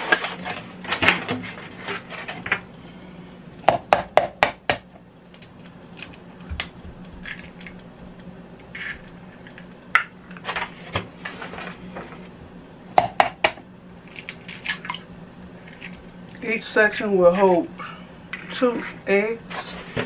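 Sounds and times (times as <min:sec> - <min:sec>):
eggs cracking against plastic cup: 0:05.3 - 0:10.4.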